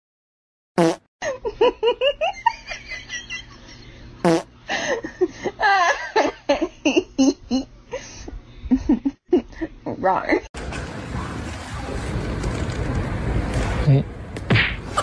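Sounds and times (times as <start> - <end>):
person laughing: 1.2 - 3.9, 4.7 - 9.8.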